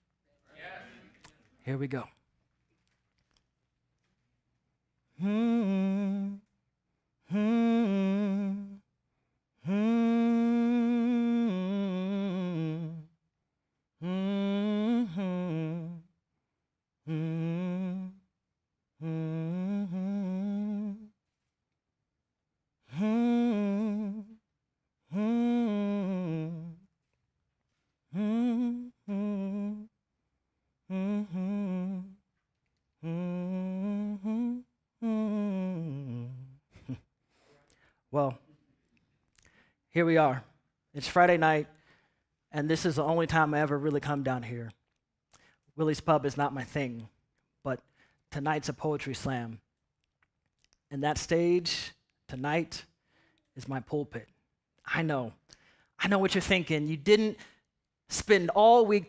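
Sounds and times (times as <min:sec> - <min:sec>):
man humming a tune: 0:05.2 - 0:06.5, 0:07.3 - 0:08.9, 0:09.6 - 0:13.2, 0:14.0 - 0:16.1, 0:17.0 - 0:18.3, 0:19.0 - 0:21.2, 0:22.9 - 0:24.4, 0:25.1 - 0:26.9, 0:28.1 - 0:30.0, 0:30.9 - 0:32.2, 0:33.0 - 0:37.1.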